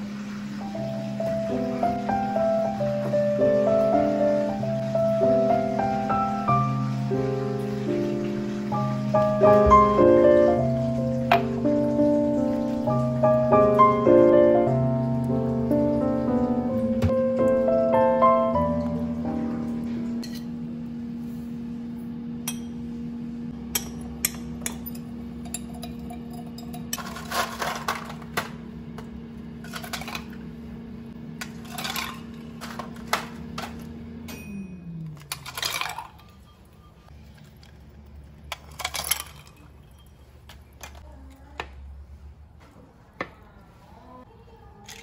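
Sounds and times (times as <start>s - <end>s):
electric hum: 0.0s - 41.0s
ice cubes clinking into glasses: 24.7s - 28.3s, 29.6s - 30.4s, 31.4s - 37.1s, 38.5s - 41.0s.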